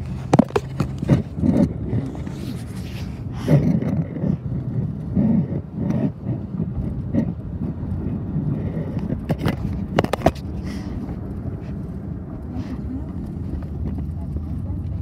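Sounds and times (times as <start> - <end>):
rubbing: 0.0 - 11.0
car rumble from inside: 0.0 - 15.0.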